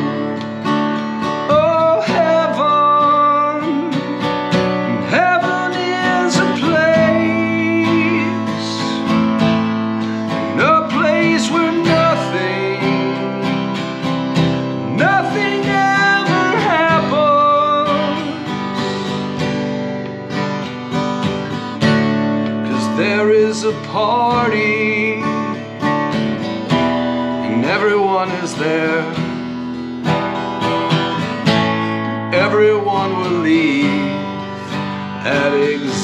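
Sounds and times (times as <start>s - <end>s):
acoustic guitar: 0.0s - 36.0s.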